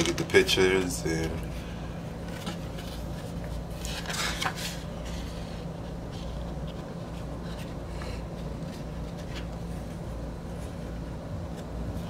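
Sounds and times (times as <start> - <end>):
steady low hum: 0.0 - 12.0
paper rustle: 2.2 - 11.6
paper pages turning: 2.2 - 12.0.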